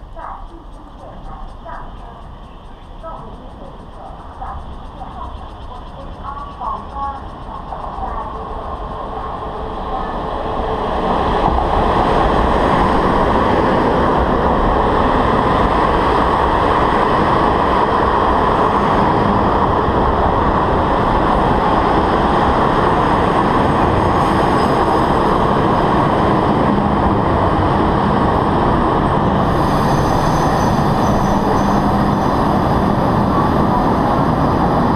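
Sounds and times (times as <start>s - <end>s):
train wheels rolling: 0.0s - 34.9s
hiss: 29.4s - 31.7s.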